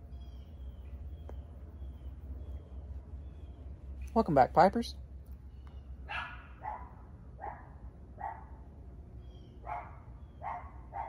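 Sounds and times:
dog barking: 6.1s - 8.6s, 9.6s - 11.0s.

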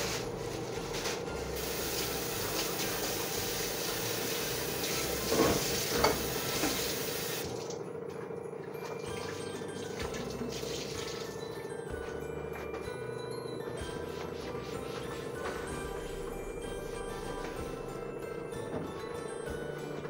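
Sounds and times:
soft background music: 0.0s - 6.6s, 7.4s - 20.0s
water running from a tap: 1.6s - 7.8s, 9.0s - 11.6s.

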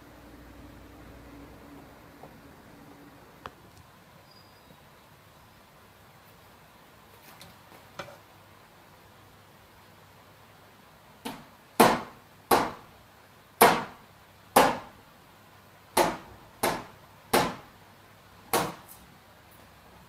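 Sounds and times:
knocks on car bodywork: 11.2s - 12.8s, 13.6s - 14.0s, 14.6s - 14.9s, 16.0s - 17.6s.

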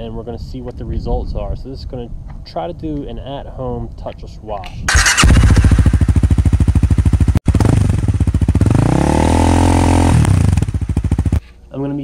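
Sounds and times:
engine exhaust pulsing and revving: 4.9s - 11.4s.

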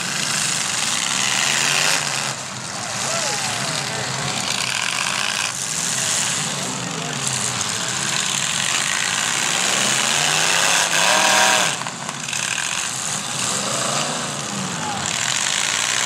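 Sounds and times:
car engines revving: 0.0s - 16.0s
voices: 2.4s - 10.0s, 13.3s - 15.7s.

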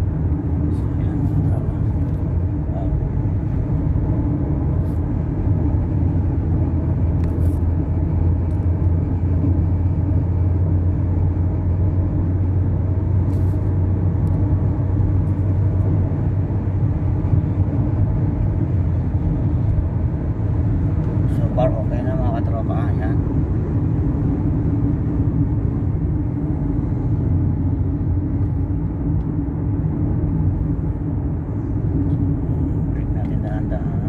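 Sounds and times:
car engine and road noise: 0.0s - 34.0s.

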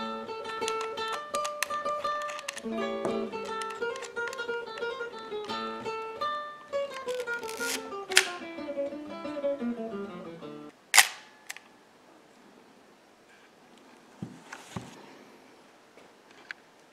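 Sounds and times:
plucked acoustic guitar music: 0.0s - 10.7s
camera shutter click: 0.7s - 2.7s, 3.4s - 4.4s, 6.9s - 8.4s, 11.0s - 11.7s.

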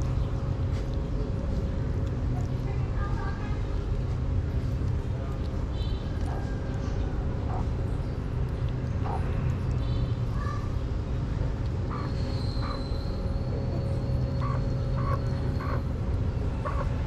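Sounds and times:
kitten eating wet food: 0.0s - 12.3s
low outdoor rumble: 0.0s - 17.0s.

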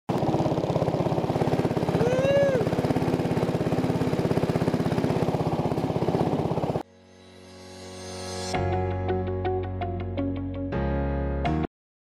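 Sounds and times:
small gas engine running: 0.1s - 6.9s
call rising and falling in pitch: 2.0s - 2.7s.

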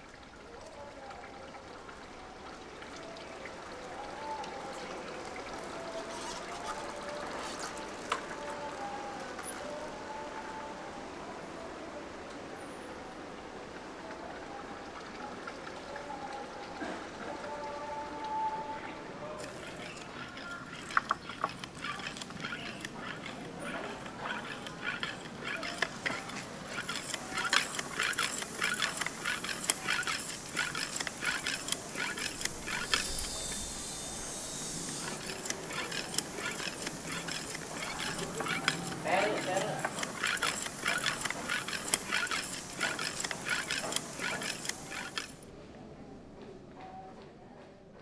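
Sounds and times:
voices: 0.0s - 47.6s
irregular clicks and clacks: 19.4s - 33.4s, 34.9s - 45.4s.

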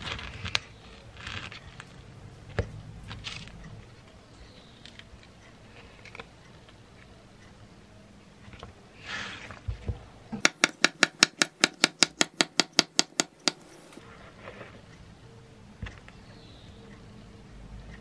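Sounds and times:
avocado skin peeling crackle: 0.0s - 2.1s
sharp tap on wooden board: 10.4s - 13.6s.

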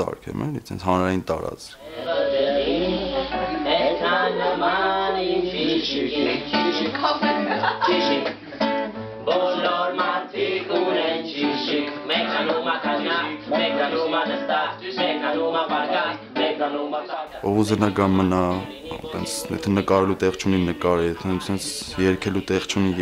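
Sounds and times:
acoustic guitar: 1.8s - 23.0s
man singing: 17.2s - 23.0s.

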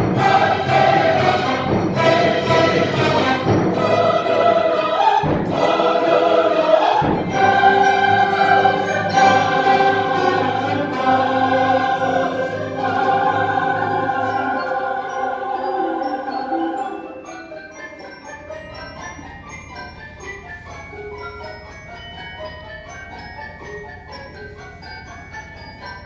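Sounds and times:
mixed choir singing held chords: 0.0s - 17.6s.

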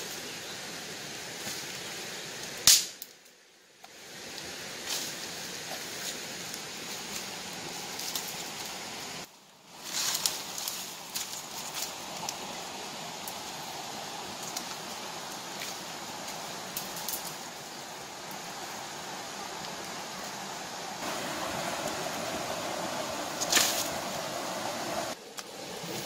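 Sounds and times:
water rushing over rocks: 11.9s - 26.0s
twigs clicking: 23.4s - 24.0s.

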